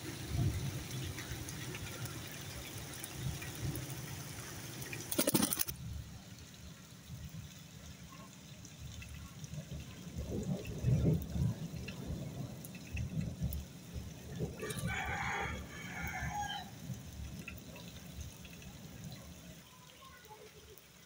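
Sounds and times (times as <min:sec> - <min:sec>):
water splashing: 0:00.0 - 0:05.8
bird wings fluttering: 0:04.8 - 0:05.7
rattling burst: 0:05.0 - 0:05.7.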